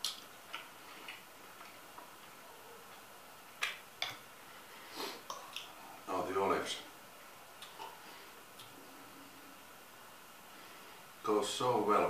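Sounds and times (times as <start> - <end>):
mouth clicks and smacks: 0.0 - 4.3, 5.2 - 5.8, 7.6 - 8.8.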